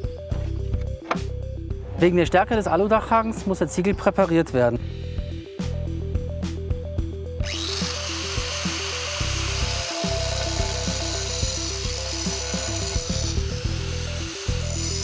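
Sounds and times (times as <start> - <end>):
angle grinder grinding tile: 7.4 - 15.0.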